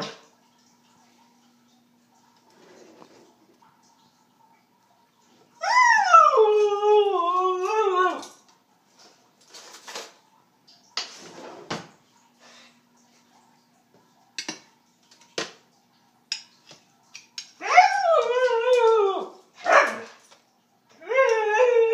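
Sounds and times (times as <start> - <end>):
dog howling: 5.6 - 8.3, 17.6 - 20.1, 21.0 - 21.9.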